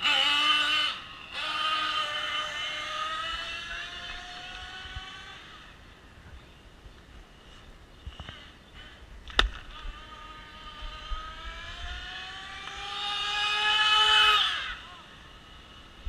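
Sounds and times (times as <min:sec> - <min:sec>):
passing car engine: 0:00.0 - 0:05.8, 0:09.7 - 0:16.0.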